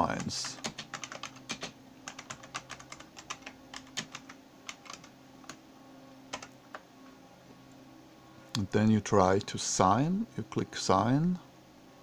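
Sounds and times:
faint hum: 0:00.0 - 0:12.0
typing on keyboard: 0:00.2 - 0:05.6, 0:06.3 - 0:06.5.

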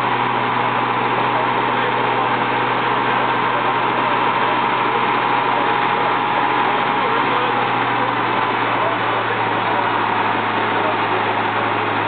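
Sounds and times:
car engine idling: 0:00.0 - 0:12.0
large floor fan blowing: 0:00.0 - 0:12.0
voices talking: 0:00.0 - 0:12.0.

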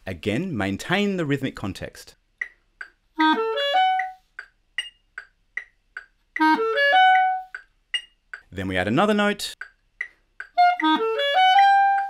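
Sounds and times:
metronome clicks: 0:02.4 - 0:08.5, 0:09.6 - 0:12.0
clarinet playing rising run: 0:06.4 - 0:07.5, 0:10.6 - 0:12.0.

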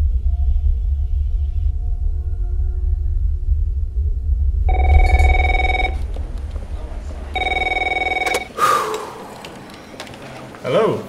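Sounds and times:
low rumble: 0:00.0 - 0:08.2
desk telephone ringing: 0:04.7 - 0:06.0, 0:07.4 - 0:08.5.

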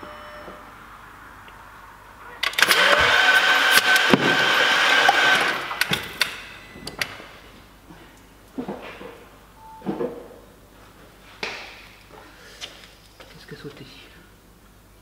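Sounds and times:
engine cranking with starter whine: 0:02.4 - 0:07.2.

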